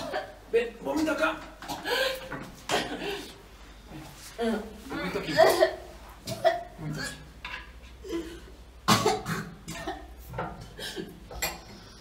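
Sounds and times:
person coughing: 5.2s - 7.2s, 8.0s - 10.1s.

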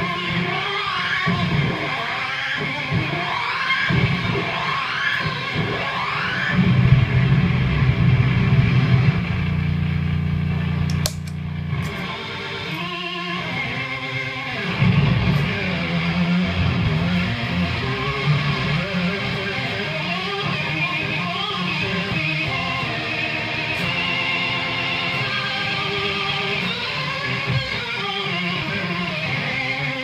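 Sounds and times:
fuzzed electric guitar: 0.0s - 30.0s
click: 10.9s - 12.0s.

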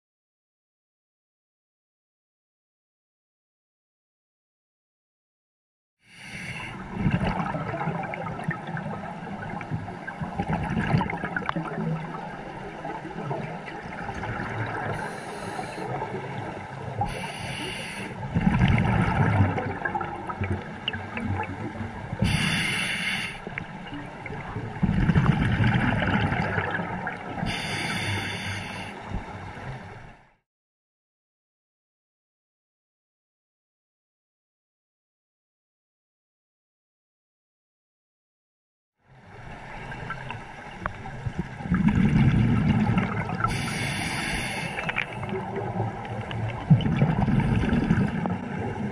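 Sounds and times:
gurgling exhaled bubbles: 6.7s - 17.3s, 18.3s - 27.8s, 41.2s - 48.9s
scuba regulator hissing: 22.3s - 23.4s.

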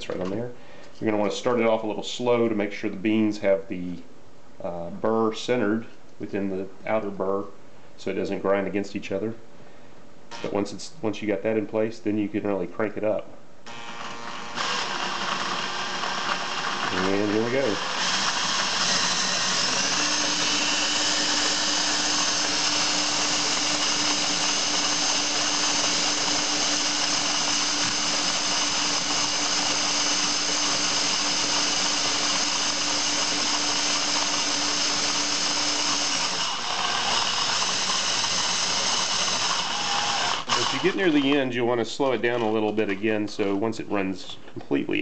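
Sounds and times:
power drill grinding coffee beans: 10.3s - 10.6s, 13.7s - 41.4s.

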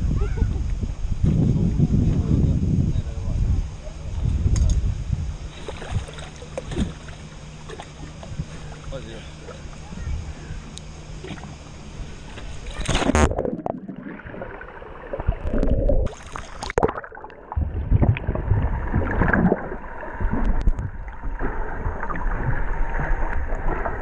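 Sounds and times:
low rumble: 0.0s - 8.8s, 17.4s - 24.0s
muffled underwater bubbling: 1.6s - 24.0s
splash into water: 5.6s - 7.9s.

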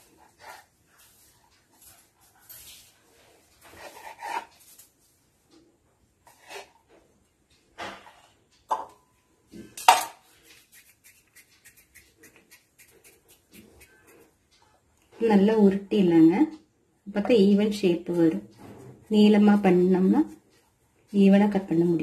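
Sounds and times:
knife cutting dough on board: 3.7s - 4.5s.

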